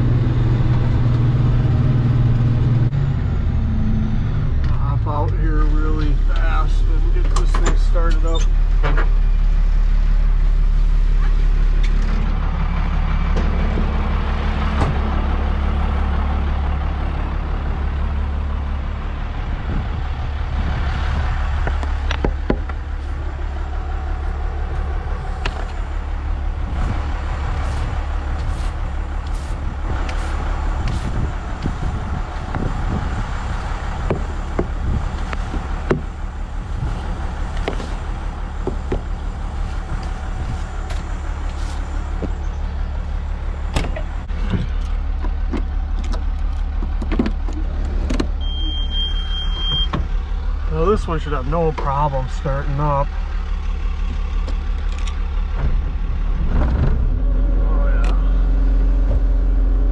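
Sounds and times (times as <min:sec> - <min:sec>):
vehicle engine idling: 0:00.0 - 0:59.9
brush sweeping snow: 0:27.6 - 0:31.3, 0:39.5 - 0:42.2.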